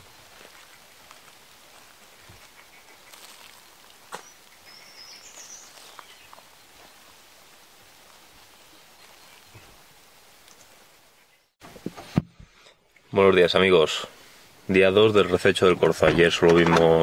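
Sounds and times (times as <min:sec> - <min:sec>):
footsteps on dry leaves: 0:00.0 - 0:10.8.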